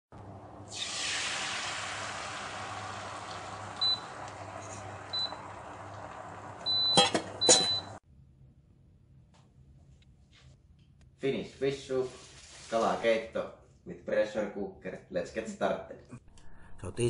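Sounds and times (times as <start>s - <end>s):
frying pan sizzling: 0.1s - 8.0s.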